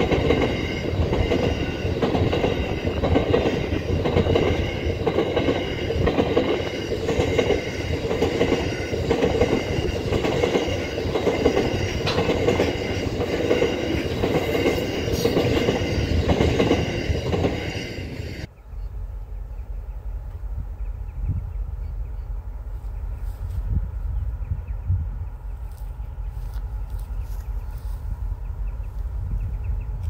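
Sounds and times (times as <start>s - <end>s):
train wheels rumbling on rail: 0.0s - 18.5s.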